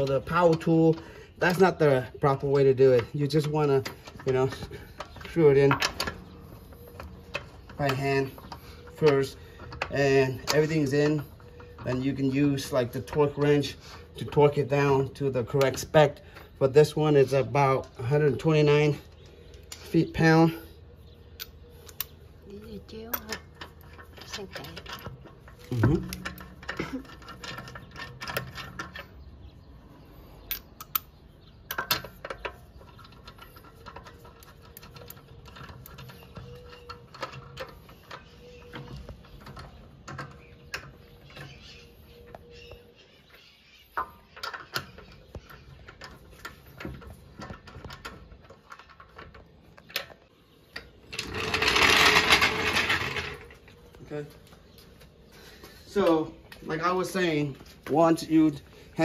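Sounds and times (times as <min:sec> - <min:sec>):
lug nuts clicking on studs: 0:00.0 - 0:19.9, 0:30.4 - 0:41.8.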